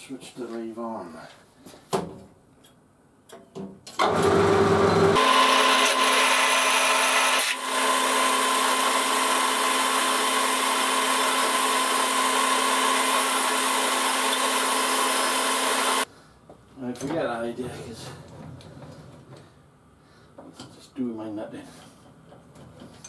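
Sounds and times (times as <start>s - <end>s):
lathe humming and whining: 4.0s - 16.0s.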